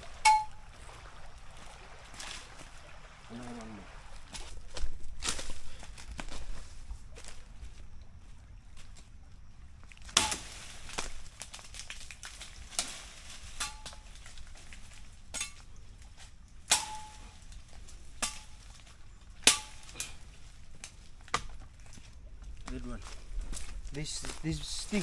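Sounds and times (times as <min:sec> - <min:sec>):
metallic ring of blade: 0:00.3 - 0:00.6
machete chopping branch: 0:10.1 - 0:11.2, 0:12.3 - 0:14.3, 0:16.7 - 0:17.4, 0:18.1 - 0:18.8, 0:19.4 - 0:20.2, 0:20.8 - 0:21.6.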